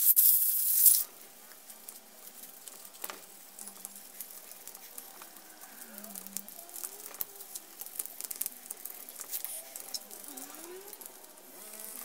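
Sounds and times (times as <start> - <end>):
small clicks and rattles: 0.2 - 12.0
faint rubbing squeaks: 9.3 - 12.0.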